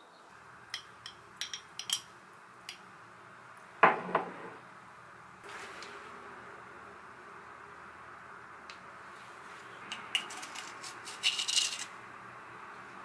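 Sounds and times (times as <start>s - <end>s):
metal spoon clinking against glass: 0.8s - 2.1s.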